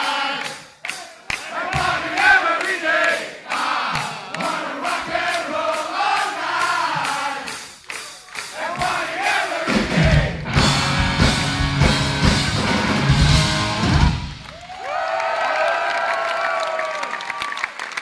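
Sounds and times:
crowd singing: 0:00.0 - 0:11.2
hard rock band playing: 0:08.3 - 0:14.4.

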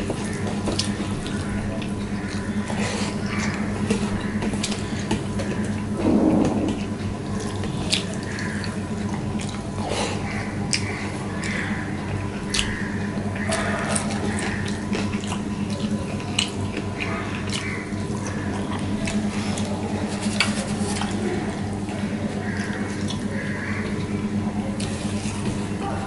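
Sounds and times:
steady low hum: 0:00.0 - 0:26.0
wet chewing and lip smacking: 0:07.4 - 0:09.8, 0:10.7 - 0:12.8, 0:13.4 - 0:21.2.

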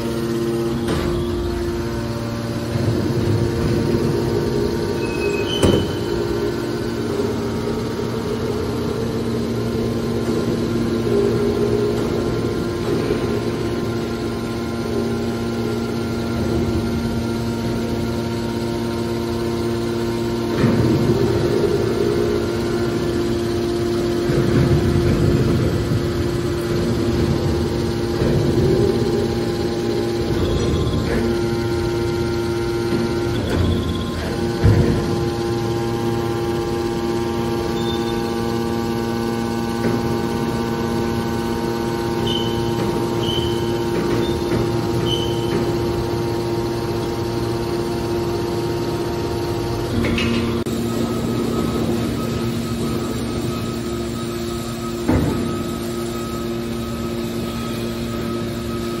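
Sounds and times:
baler motor humming: 0:00.0 - 0:59.0
loud rumbling: 0:00.7 - 0:15.2.

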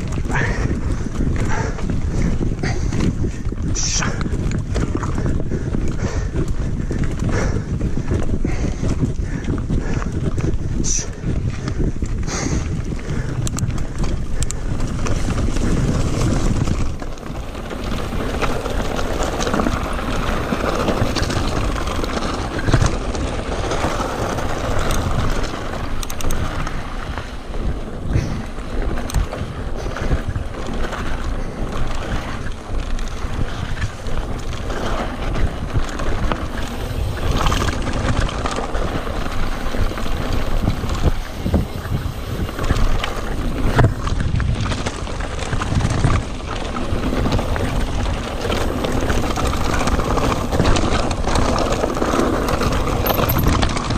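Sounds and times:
bike rattling: 0:00.0 - 0:53.9
wind rushing over microphone: 0:00.0 - 0:53.9
tyres crunching over gravel: 0:12.7 - 0:53.9.

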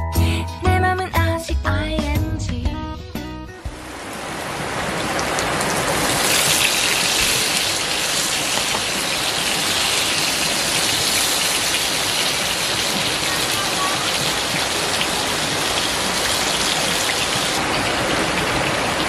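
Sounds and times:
music track: 0:00.0 - 0:04.0
water hissing: 0:05.4 - 0:17.6.

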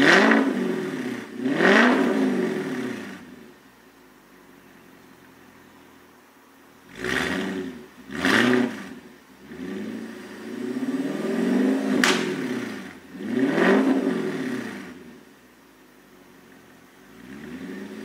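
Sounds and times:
car engine idling and revving: 0:00.0 - 0:18.0
exhaust crack: 0:11.4 - 0:15.2.

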